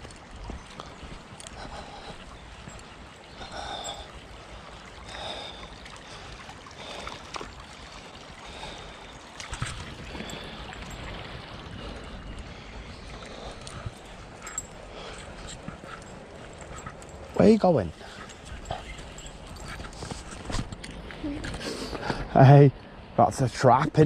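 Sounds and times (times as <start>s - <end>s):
footsteps scuffing on outdoor path: 0.0s - 2.9s.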